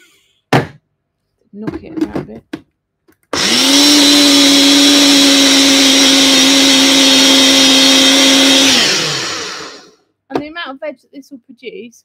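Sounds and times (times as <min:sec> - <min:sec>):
blender motor whining: 0:03.3 - 0:10.0.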